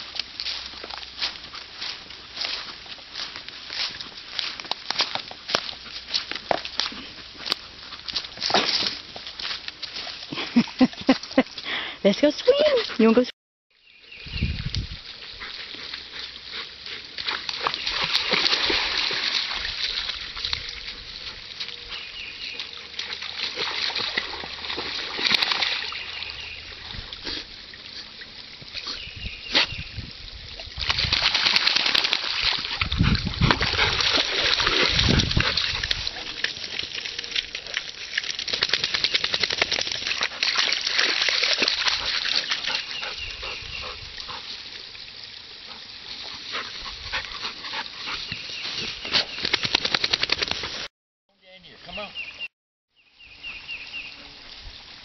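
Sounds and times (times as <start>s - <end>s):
dog splashing through water: 15.4s - 28.0s, 30.6s - 44.6s.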